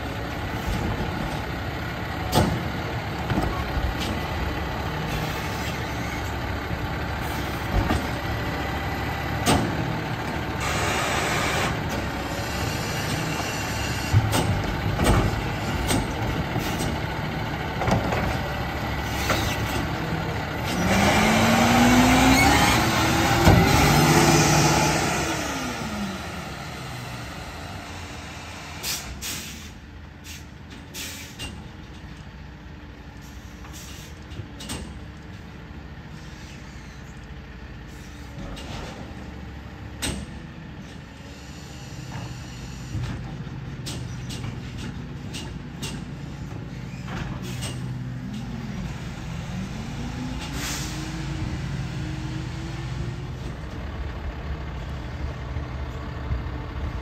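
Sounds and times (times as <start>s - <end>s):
diesel engine revving: 0.0s - 30.4s, 32.9s - 57.0s
air brake hiss: 28.2s - 31.6s, 33.2s - 34.2s, 50.4s - 51.3s.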